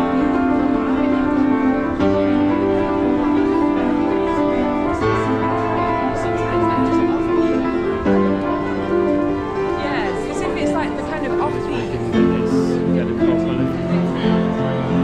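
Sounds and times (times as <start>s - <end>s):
upright piano chords: 0.0s - 15.0s.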